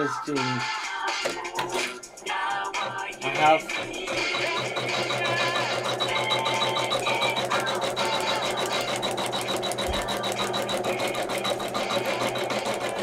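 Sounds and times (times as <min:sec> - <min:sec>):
embroidery machine stitching: 0:02.8 - 0:13.0.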